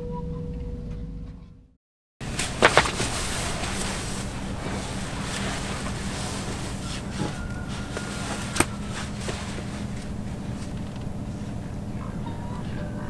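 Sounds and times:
water noise: 0:02.2 - 0:12.0
low steady hum: 0:02.2 - 0:13.0
wind: 0:02.2 - 0:13.0.

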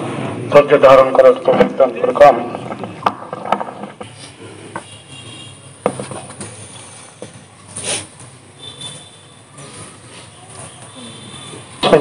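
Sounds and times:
faint background ambience: 0:00.0 - 0:12.0
microphone handling knocks and rustles: 0:02.4 - 0:04.2, 0:05.8 - 0:06.6.

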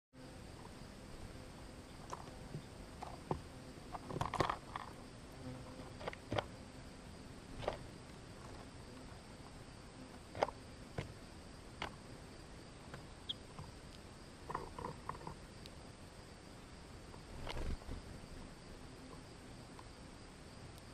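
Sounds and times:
bird pecking seeds: 0:12.9 - 0:15.8
flurry of bird movement: 0:17.1 - 0:18.6.

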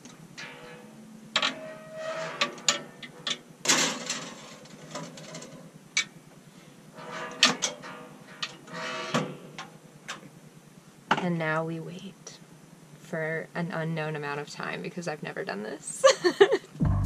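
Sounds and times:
metal clanks of oven door and rack: 0:00.4 - 0:06.2, 0:07.0 - 0:10.2
short metal rattles: 0:02.3 - 0:06.2.

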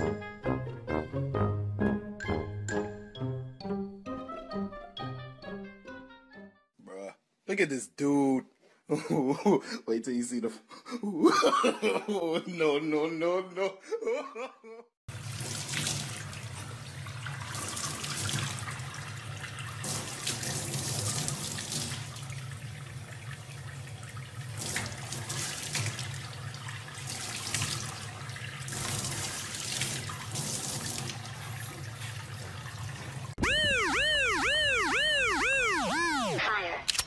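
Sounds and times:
tap water running into sink: 0:15.1 - 0:33.2.

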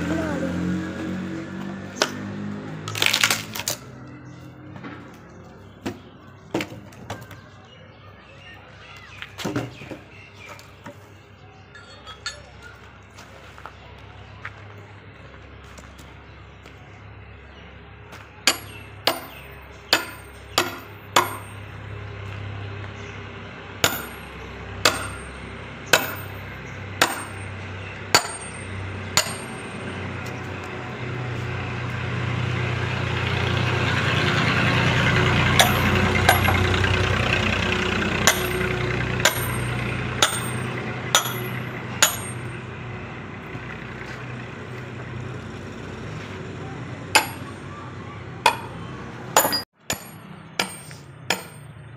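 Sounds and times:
metal tool chopping log: 0:02.0 - 0:02.3, 0:18.5 - 0:21.6, 0:23.8 - 0:26.4, 0:27.0 - 0:30.0, 0:35.5 - 0:36.8, 0:38.2 - 0:42.5, 0:47.2 - 0:47.5, 0:48.5 - 0:48.8, 0:49.4 - 0:51.7.

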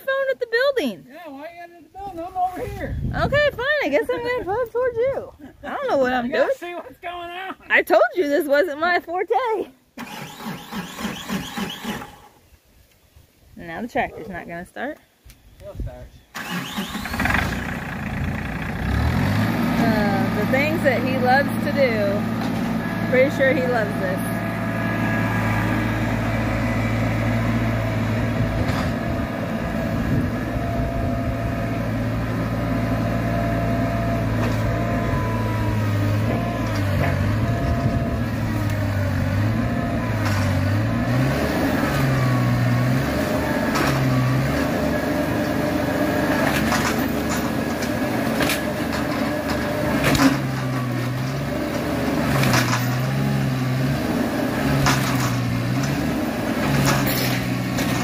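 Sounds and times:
tractor engine running under load: 0:16.4 - 0:58.0.

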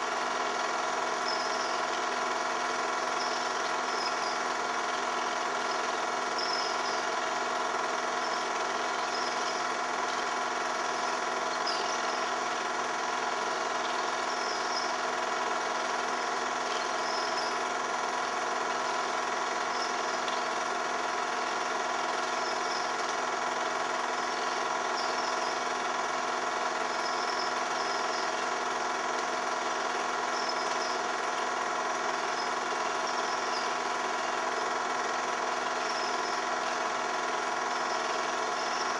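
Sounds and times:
film projector whirring: 0:00.0 - 0:38.9.

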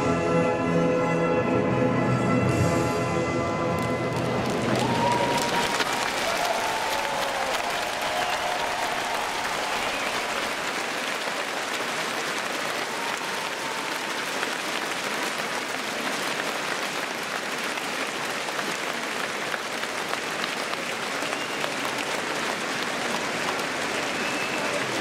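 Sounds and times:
stadium crowd applauding: 0:03.7 - 0:25.0.

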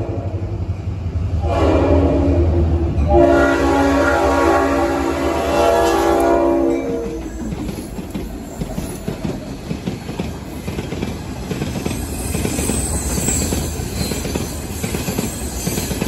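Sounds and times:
locomotive air horn: 0:01.4 - 0:07.4
wheels clattering over rails: 0:07.0 - 0:16.0.

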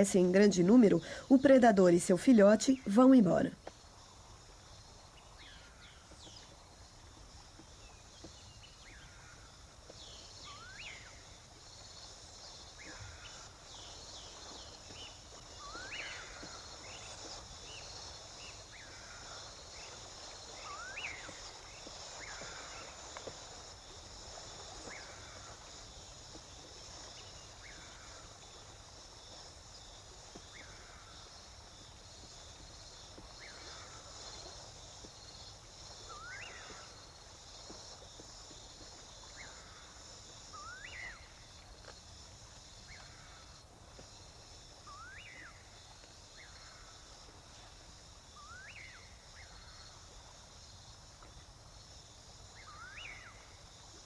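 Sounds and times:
high-pitched insect drone: 0:08.2 - 0:51.1.

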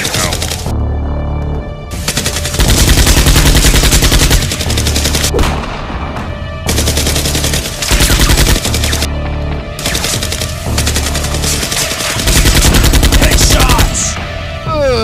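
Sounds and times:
rapid automatic gunfire effects: 0:00.0 - 0:00.7, 0:02.0 - 0:05.3, 0:06.7 - 0:09.1, 0:09.8 - 0:14.0
background music with steady bass: 0:00.0 - 0:15.0.

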